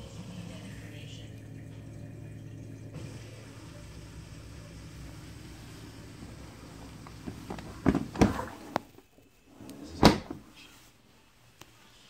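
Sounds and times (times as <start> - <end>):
dishwasher wash noise: 0.0 - 10.5
dishwasher door clunks: 7.2 - 8.6, 9.8 - 10.4.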